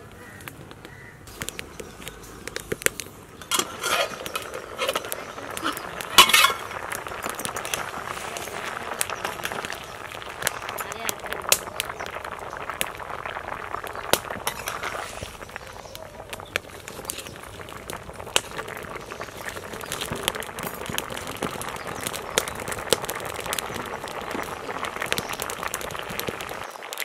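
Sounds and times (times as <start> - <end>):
water boiling in a pan: 0.0 - 27.0.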